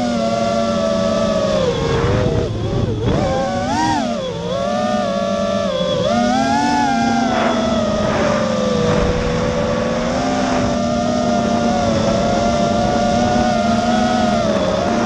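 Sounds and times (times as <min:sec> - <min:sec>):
quadcopter motors whining: 0:00.0 - 0:15.0
rush of air: 0:07.3 - 0:11.0.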